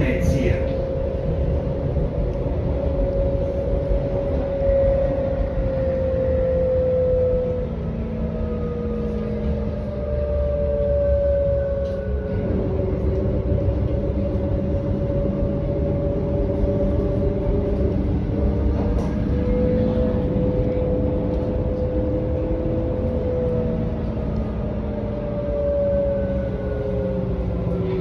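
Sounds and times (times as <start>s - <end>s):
train wheels rumbling on track: 0.0s - 28.0s.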